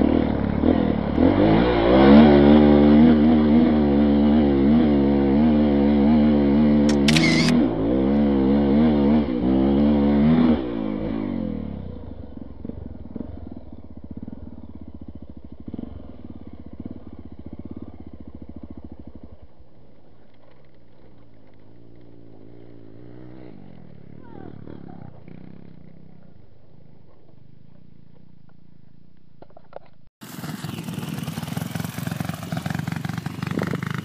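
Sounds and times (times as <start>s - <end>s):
motorcycle engine revving: 0.0s - 29.2s, 30.2s - 34.0s.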